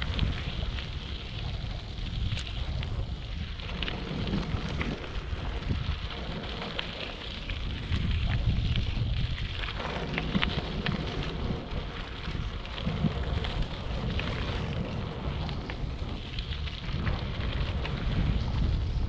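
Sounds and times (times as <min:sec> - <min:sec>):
small crackles and ticks: 0:00.0 - 0:19.0
wind buffeting microphone: 0:00.0 - 0:19.0.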